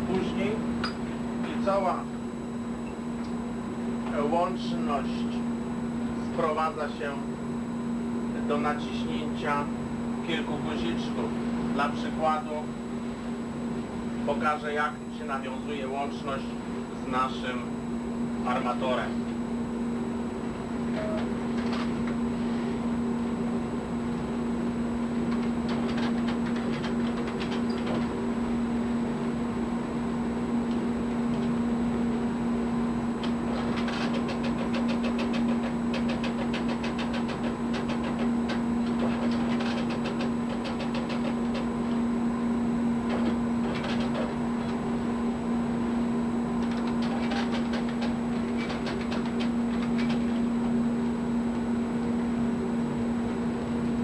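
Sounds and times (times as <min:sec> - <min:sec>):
telex printer clattering: 0:25.3 - 0:28.2, 0:33.2 - 0:41.9, 0:43.0 - 0:44.9, 0:46.6 - 0:50.5.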